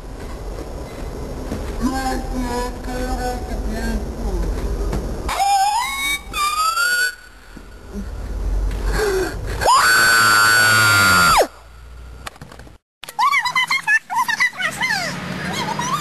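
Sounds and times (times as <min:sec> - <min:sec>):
child screaming: 0:05.3 - 0:07.2.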